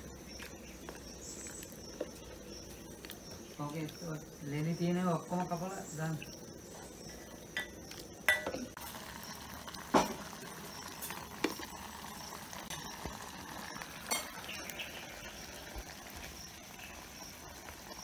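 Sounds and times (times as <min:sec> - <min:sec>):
high drone of insects: 0:00.0 - 0:18.0
ladle clinking against clay pots: 0:07.6 - 0:08.7, 0:14.1 - 0:14.4.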